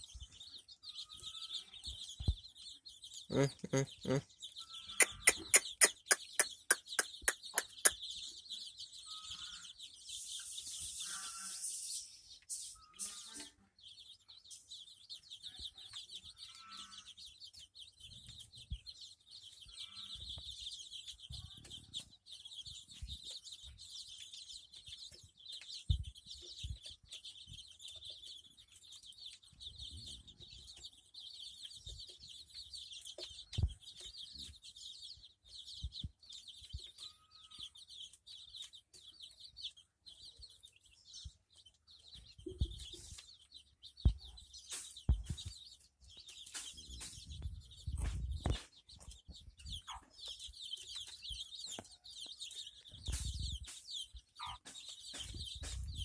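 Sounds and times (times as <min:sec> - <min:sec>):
chicks peeping: 0:00.0 - 0:56.0
hen clucking: 0:03.3 - 0:08.1, 0:48.0 - 0:53.8, 0:54.4 - 0:56.0.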